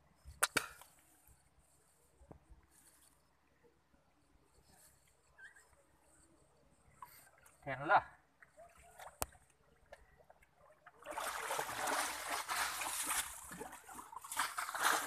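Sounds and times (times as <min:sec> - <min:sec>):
sharp click: 0:00.4 - 0:00.9
water splashing and trickling: 0:06.8 - 0:15.0.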